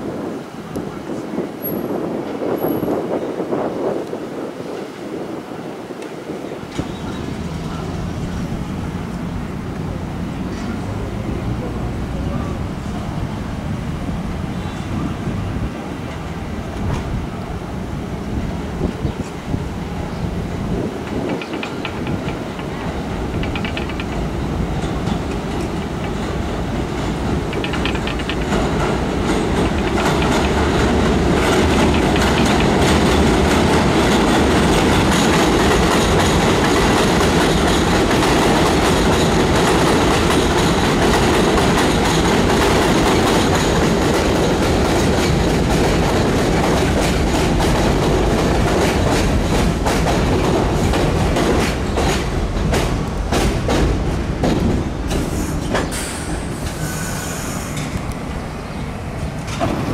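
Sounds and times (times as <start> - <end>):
train wheels rumbling on rails: 0.0 - 59.9
wheel clicks over rail joints: 21.0 - 56.0
high brake squeal: 55.2 - 57.9.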